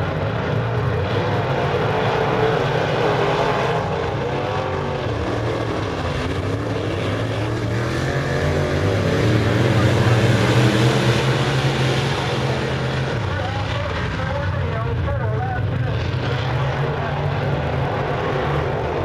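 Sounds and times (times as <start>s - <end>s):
race car engines droning: 0.0s - 19.0s.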